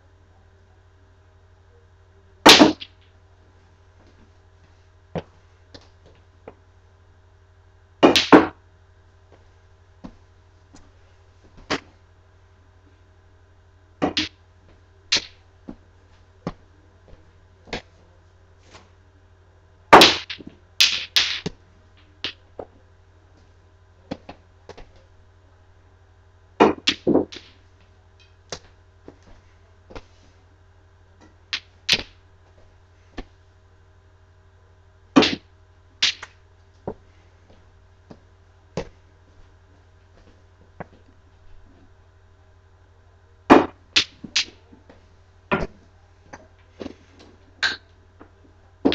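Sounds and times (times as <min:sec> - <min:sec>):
low steady hum: 0:00.0 - 0:48.9
pool balls clacking: 0:08.0 - 0:08.6, 0:14.0 - 0:14.4, 0:26.6 - 0:29.2, 0:43.5 - 0:48.9.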